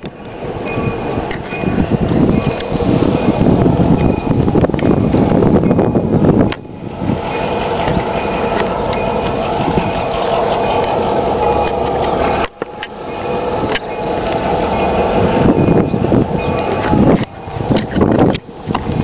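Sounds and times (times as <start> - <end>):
diesel locomotive engine running: 0.0 - 19.0
wind rumble on microphone: 0.0 - 19.0.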